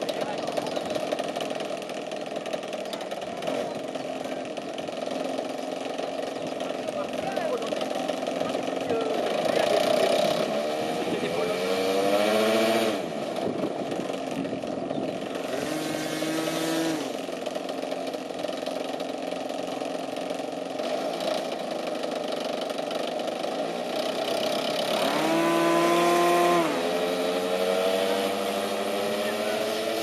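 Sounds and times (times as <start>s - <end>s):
model airplane engine revving: 0.0s - 30.0s.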